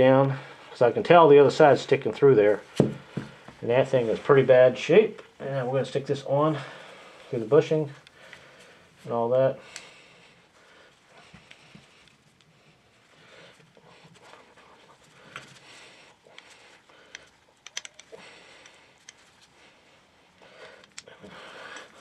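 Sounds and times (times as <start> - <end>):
gloved hands rubbing parts: 10.4 - 22.0.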